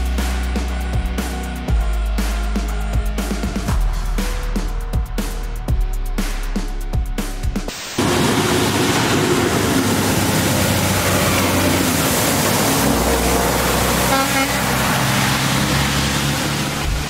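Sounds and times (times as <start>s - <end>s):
water rushing and splashing: 7.7s - 17.0s
truck engine: 8.0s - 17.0s.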